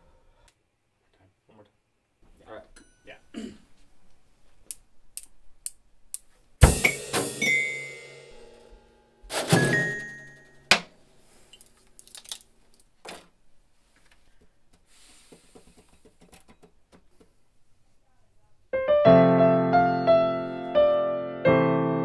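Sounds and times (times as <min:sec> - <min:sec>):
knocks and taps: 0:14.4 - 0:17.4
keyboard playing notes over chords: 0:18.8 - 0:22.0.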